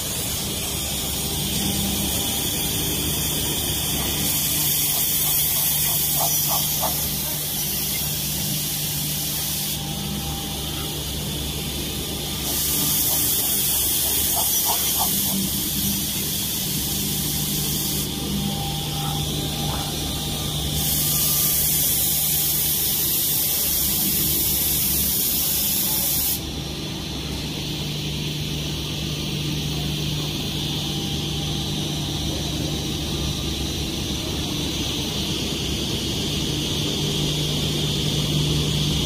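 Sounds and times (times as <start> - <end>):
machine motor hum: 0.0 - 22.2
harsh loud hiss: 12.2 - 18.2, 20.7 - 26.4.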